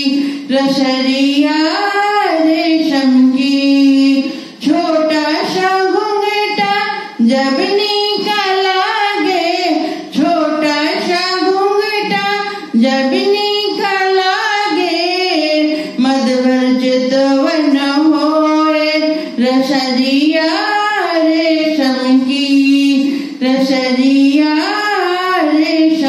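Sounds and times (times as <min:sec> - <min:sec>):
singer breathing: 0:00.2 - 0:00.5, 0:04.2 - 0:04.6, 0:09.8 - 0:10.2, 0:12.4 - 0:12.8, 0:15.7 - 0:16.0, 0:19.2 - 0:19.4, 0:23.0 - 0:23.4.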